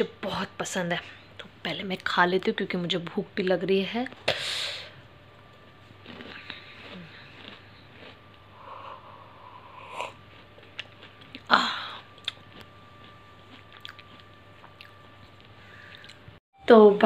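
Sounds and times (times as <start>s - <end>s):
chewing crunchy snack: 5.8s - 8.4s, 10.1s - 16.2s.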